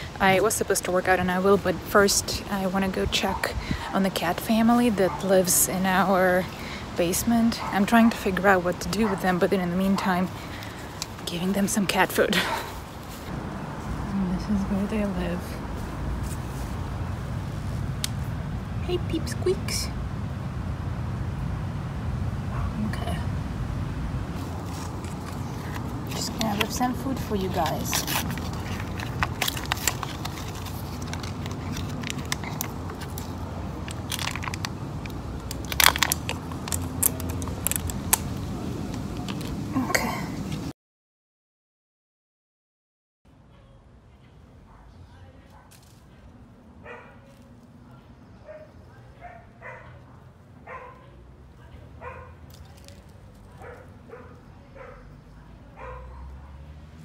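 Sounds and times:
packaging crinkling and tearing: 0:24.4 - 0:39.6.

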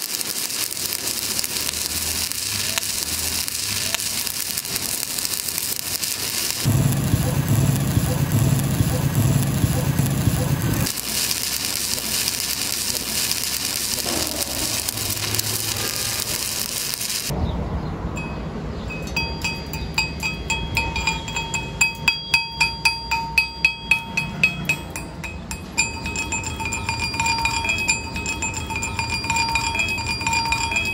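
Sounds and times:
welding arc crackling: 0:00.0 - 0:17.4, 0:25.8 - 0:30.9.

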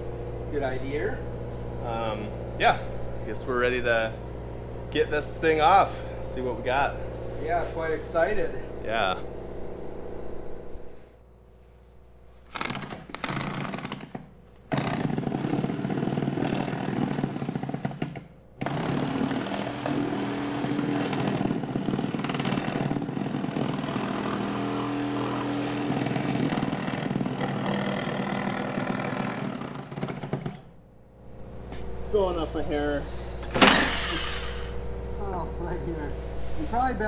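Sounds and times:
reciprocating saw cutting fiberglass: 0:12.5 - 0:30.7.

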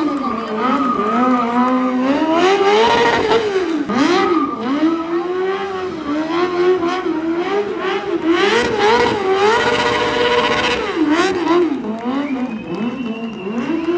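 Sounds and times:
motorcycle engine revving hard: 0:00.0 - 0:13.9.

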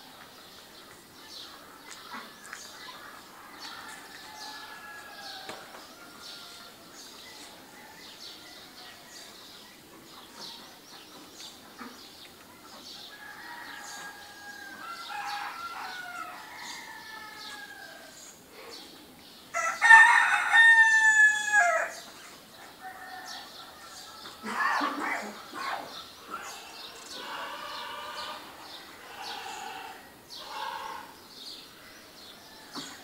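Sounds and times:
small birds chirping: 0:00.0 - 0:19.7, 0:21.8 - 0:33.0
rooster crowing: 0:03.8 - 0:06.8, 0:13.2 - 0:18.1, 0:19.6 - 0:22.0.

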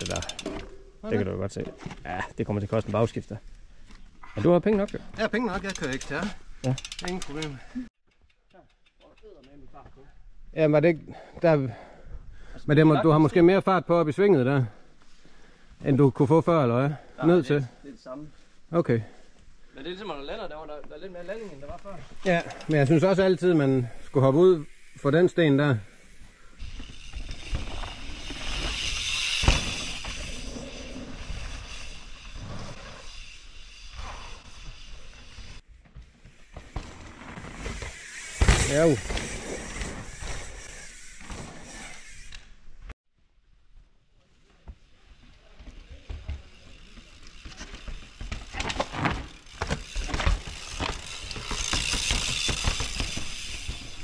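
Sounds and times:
bike tyres rolling over rocks: 0:26.0 - 0:42.2, 0:44.7 - 0:54.0.

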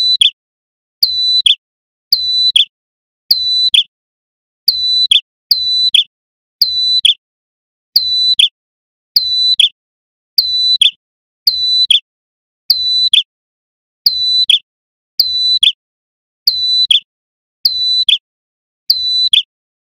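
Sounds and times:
bird whistled calls: 0:00.0 - 0:00.4, 0:01.1 - 0:01.6, 0:02.2 - 0:02.7, 0:03.4 - 0:03.9, 0:04.7 - 0:06.1, 0:06.7 - 0:07.2, 0:09.2 - 0:09.8, 0:10.4 - 0:12.1, 0:12.8 - 0:13.3, 0:14.2 - 0:14.6, 0:15.2 - 0:15.8, 0:16.5 - 0:17.1, 0:17.7 - 0:18.2, 0:18.9 - 0:19.5.

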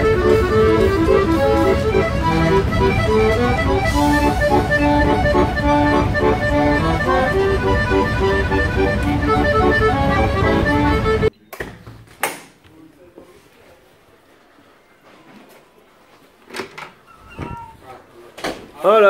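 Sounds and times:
instrumental music: 0:00.0 - 0:11.3.

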